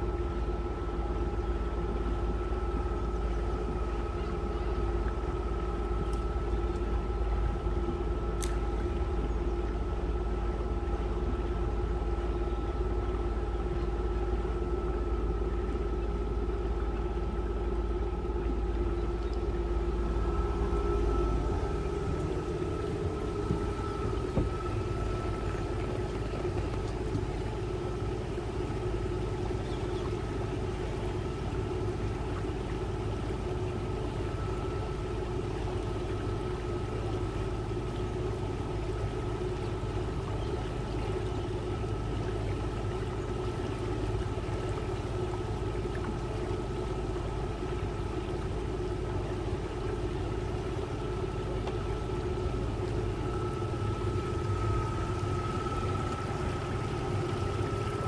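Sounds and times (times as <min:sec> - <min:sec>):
boat engine drone: 0:00.0 - 0:58.0
thin steady whine: 0:00.0 - 0:58.0.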